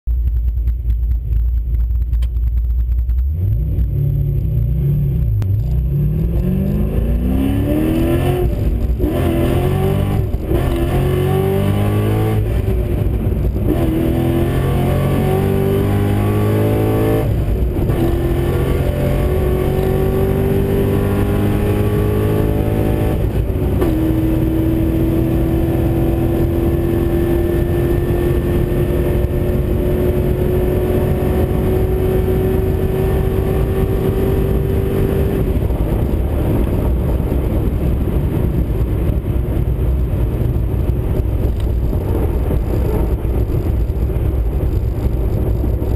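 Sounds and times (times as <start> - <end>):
car engine revving through gears: 3.3 - 37.2.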